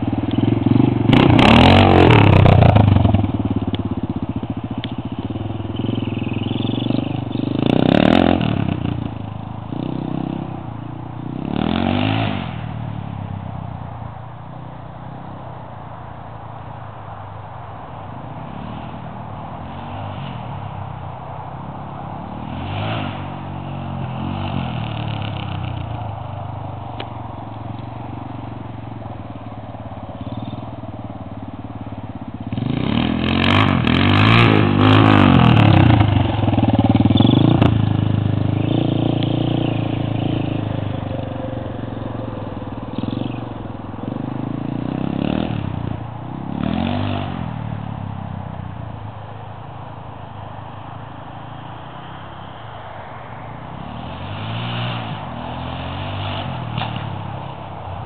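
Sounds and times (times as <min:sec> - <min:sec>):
dirt bike engine revving: 0:00.0 - 0:13.0, 0:30.0 - 0:47.9, 0:53.8 - 0:58.0.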